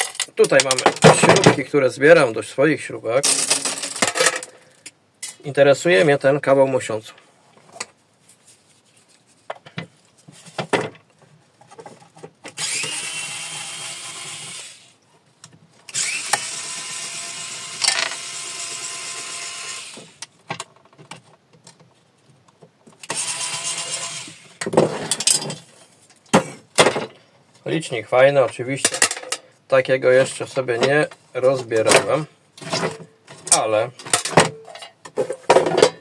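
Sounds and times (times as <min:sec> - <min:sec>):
metal parts clicking and knocking: 0:00.0 - 0:01.6, 0:03.2 - 0:04.6, 0:17.8 - 0:18.2, 0:24.6 - 0:25.7, 0:28.8 - 0:29.4
electric screwdriver running: 0:12.6 - 0:14.9, 0:15.9 - 0:20.2, 0:23.1 - 0:24.4.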